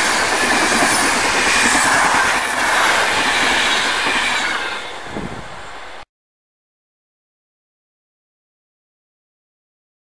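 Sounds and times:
passing train: 0.0 - 6.1.

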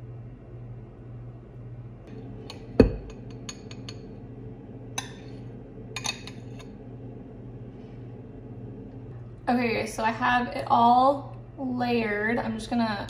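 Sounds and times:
metal spoon clinking on glass: 6.0 - 6.6.

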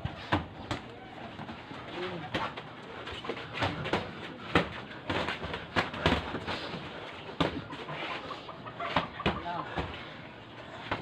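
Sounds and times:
boxing gloves smacking punch mitts: 2.1 - 7.8.

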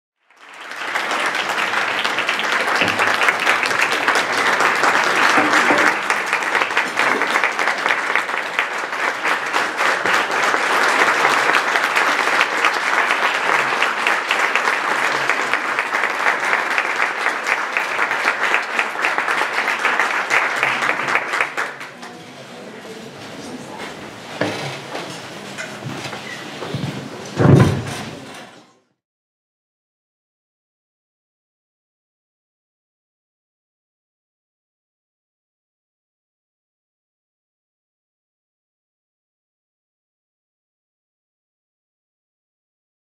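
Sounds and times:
audience applauding: 0.2 - 22.2.

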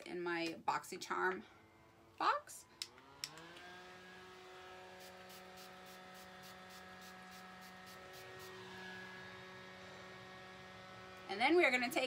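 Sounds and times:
setting spray spritzes: 5.0 - 8.6.

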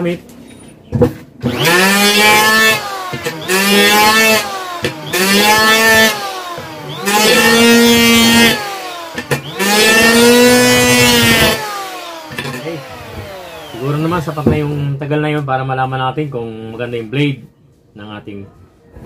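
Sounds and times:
electric hand planer cutting wood: 1.4 - 14.9.

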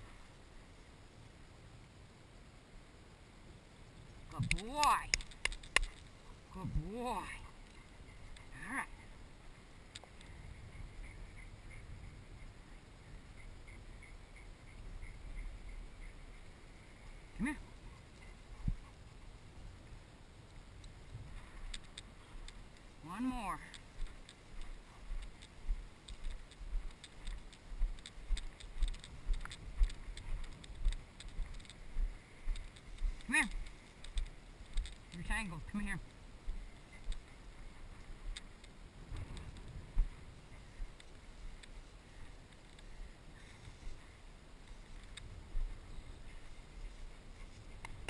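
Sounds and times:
wind rumble on microphone: 3.9 - 48.0
light clicks: 4.3 - 6.2, 20.8 - 22.9, 23.6 - 35.4.

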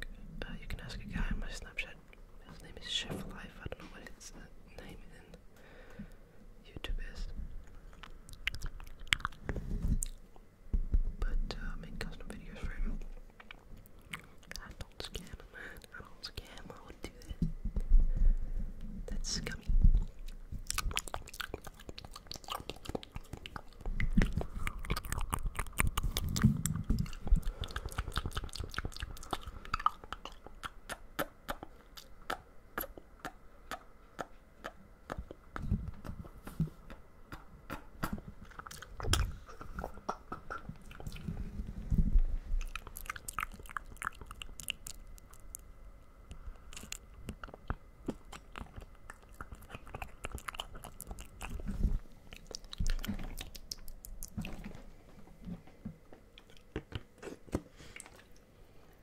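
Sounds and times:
wet mouth clicks and smacks: 8.0 - 10.2, 13.4 - 15.4, 19.4 - 41.4, 42.6 - 45.7, 46.3 - 54.6.

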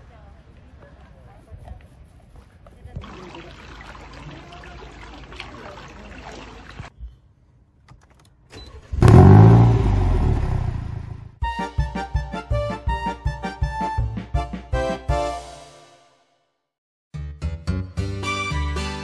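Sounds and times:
car engine starting and revving: 8.7 - 11.4.

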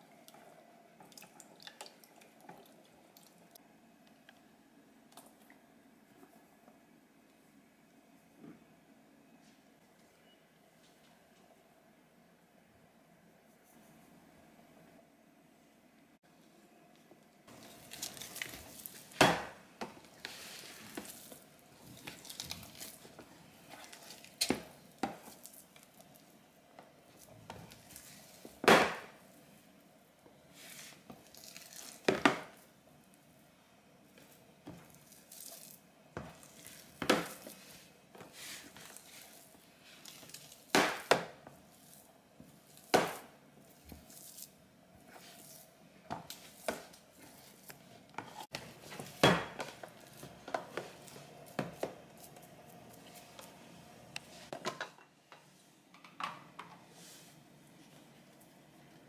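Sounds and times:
hands squishing sticky dough: 17.5 - 26.4, 30.5 - 32.8, 34.1 - 53.6.

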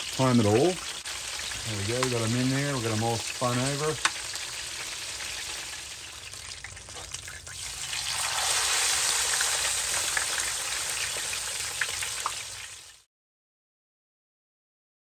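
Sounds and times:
hot oil sizzling in frying pan: 0.0 - 13.1.

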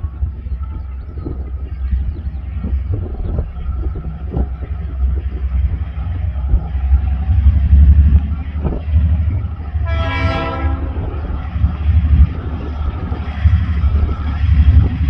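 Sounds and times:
train low rumble: 0.0 - 15.0
locomotive horn blast: 9.8 - 11.4.

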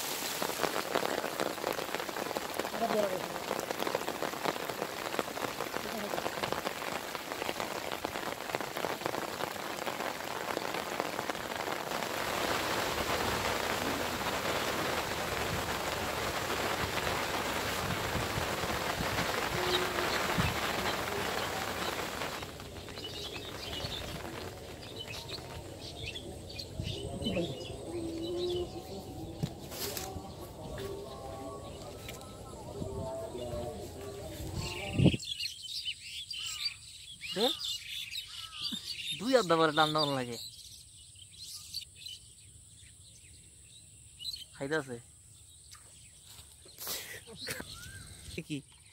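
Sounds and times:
heavy rain on water: 0.0 - 28.8.

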